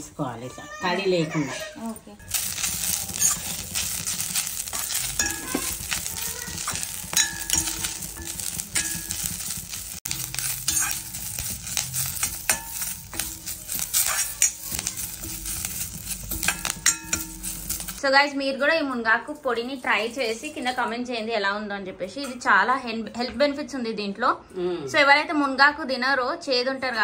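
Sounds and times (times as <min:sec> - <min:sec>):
leaves sizzling and rustling: 0:00.9 - 0:21.1
metal spatula scraping a pan: 0:01.3 - 0:18.0.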